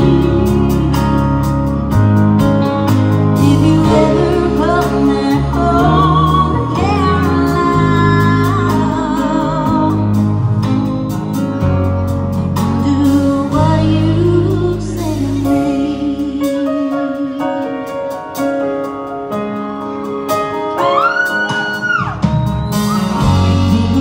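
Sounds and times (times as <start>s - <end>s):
woman singing: 0.0s - 1.5s, 3.4s - 10.4s, 12.6s - 18.1s, 23.4s - 24.0s
bass guitar: 0.0s - 24.0s
electric guitar: 0.0s - 24.0s.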